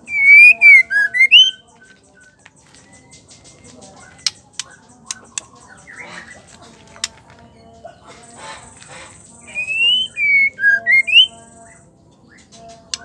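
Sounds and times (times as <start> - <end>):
bird singing whistled notes: 0.0 - 6.1, 9.3 - 13.0
sharp ticks: 1.9 - 7.2.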